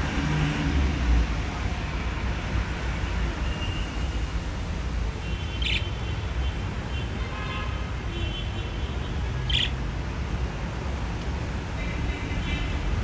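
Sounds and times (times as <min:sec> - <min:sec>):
budgerigars chirping: 0:05.5 - 0:06.0, 0:09.5 - 0:09.8.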